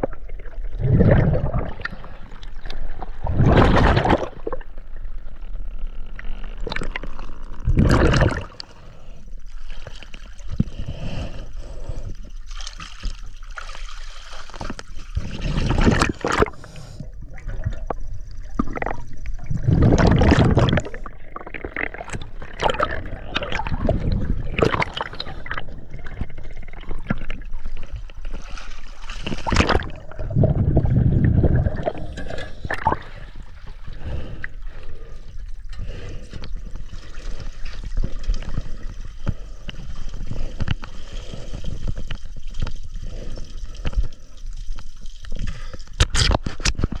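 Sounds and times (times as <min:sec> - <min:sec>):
water gurgling and bubbling: 0:00.0 - 0:05.3, 0:06.1 - 0:09.2, 0:13.5 - 0:35.2.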